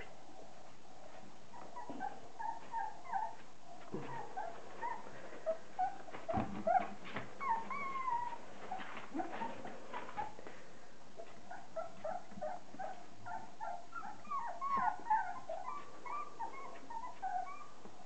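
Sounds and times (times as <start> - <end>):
puppies whining: 1.4 - 10.4, 11.2 - 18.0.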